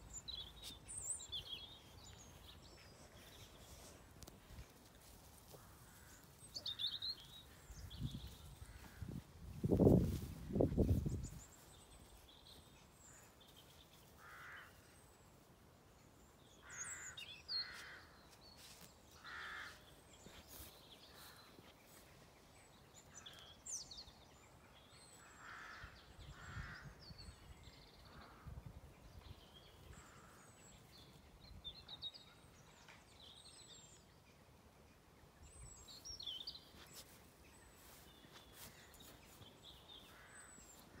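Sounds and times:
small birds chirping: 0.0 - 15.0, 29.1 - 41.0
crows cawing faintly: 4.2 - 7.7, 8.4 - 9.2, 14.0 - 15.0, 16.6 - 18.3, 19.2 - 21.6, 25.2 - 27.0, 40.0 - 41.0.

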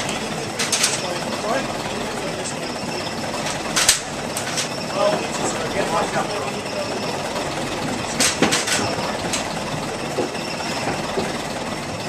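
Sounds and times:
metal knocks and clanks: 2.5 - 6.3, 7.7 - 12.0.

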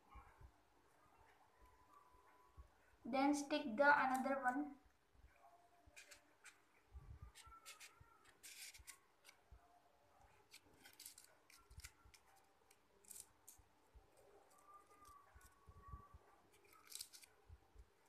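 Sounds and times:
paper rustling and crinkling: 7.3 - 9.4, 10.3 - 15.6, 16.5 - 17.5.

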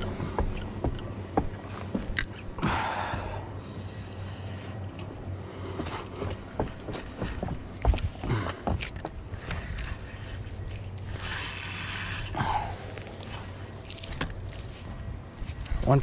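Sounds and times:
fishing reel clicking and rattling: 11.0 - 12.4.

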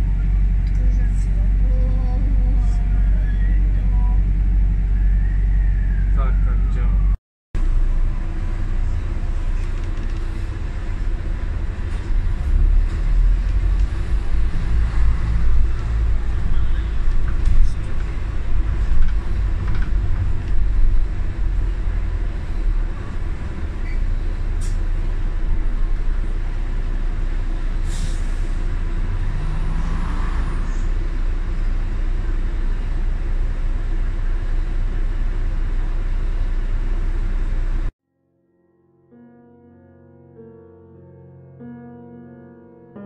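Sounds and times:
street traffic rumble: 0.0 - 37.9
bus engine: 0.0 - 38.0
air brakes hissing: 24.6 - 24.9, 27.8 - 28.7.

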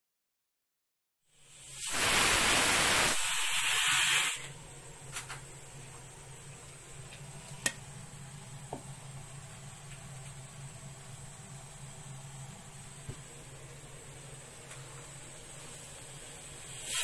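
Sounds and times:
loud hiss: 1.3 - 4.6, 10.6 - 17.0.

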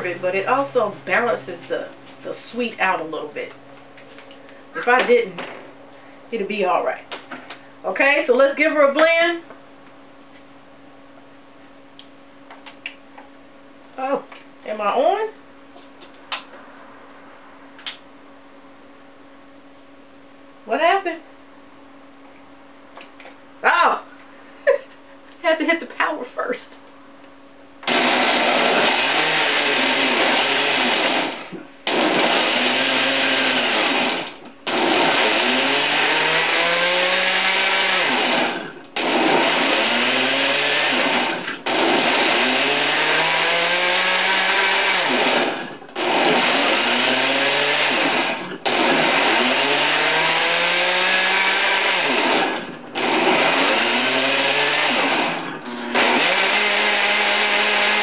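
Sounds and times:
blender motor running: 27.8 - 58.0.

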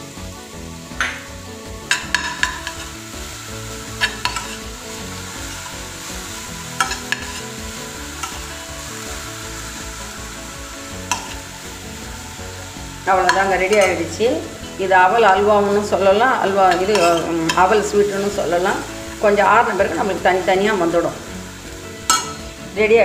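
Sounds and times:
food sizzling in a pan: 0.0 - 23.0
spoon clinking and scraping pan: 1.0 - 3.0, 3.9 - 8.6, 11.0 - 11.5, 13.2 - 14.8, 16.6 - 18.0, 22.0 - 22.6.

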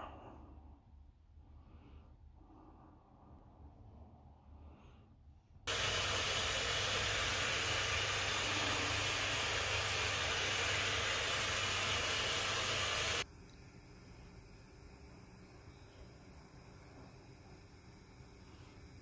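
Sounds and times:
loud steady hiss: 5.7 - 19.0.

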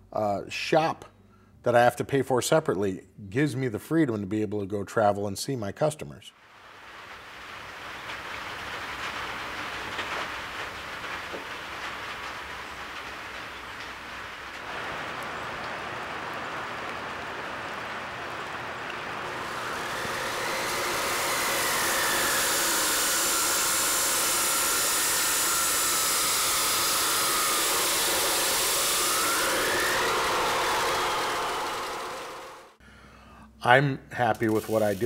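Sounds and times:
chop saw grinding steel: 19.4 - 32.8
quiet steady hiss: 32.8 - 35.0.

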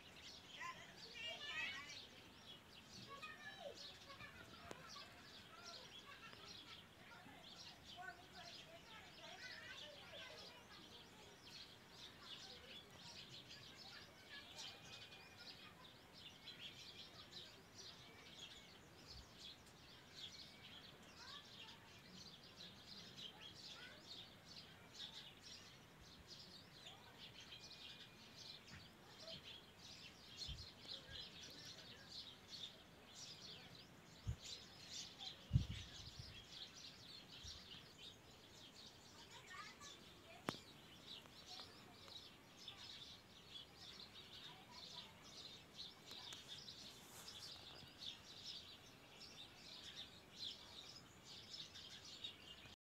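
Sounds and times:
small birds chirping: 0.0 - 52.8.

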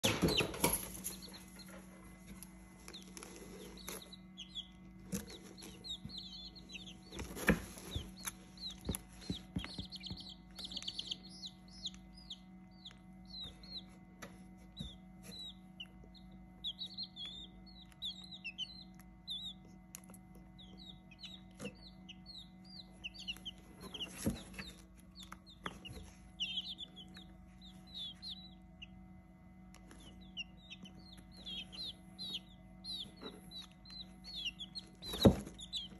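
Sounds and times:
knocks and rustles: 0.0 - 4.1, 5.0 - 11.3, 23.1 - 27.2, 31.4 - 35.9
baby chicks peeping: 0.0 - 35.9
steady low hum: 0.0 - 35.9.

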